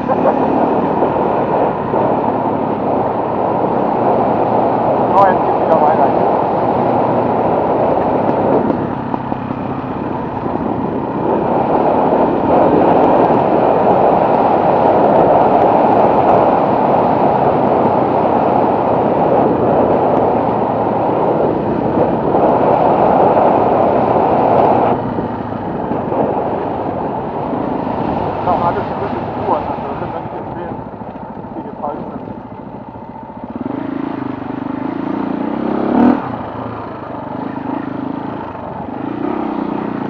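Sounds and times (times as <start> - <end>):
wind rushing over microphone: 0.0 - 40.0
motorcycle engine under load: 6.1 - 40.0.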